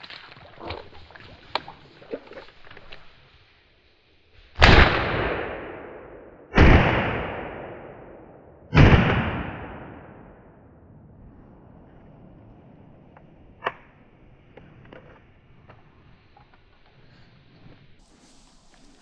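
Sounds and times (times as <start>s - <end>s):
shotgun blasts with echo: 4.6s - 10.6s.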